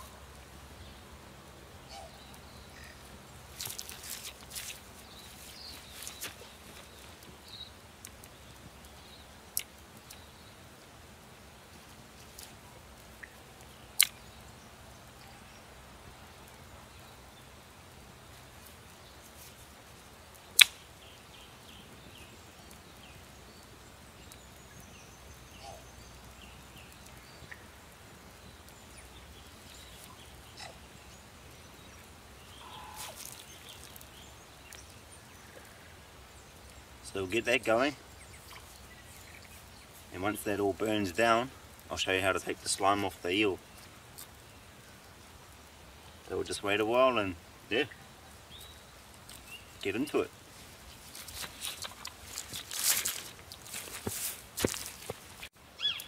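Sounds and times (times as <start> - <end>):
fire ticking: 2.3 - 14.5, 18.6 - 25.3
dry sticks snapping: 3.5 - 7.3, 14.0 - 14.2, 20.6 - 20.9, 51.0 - 55.5.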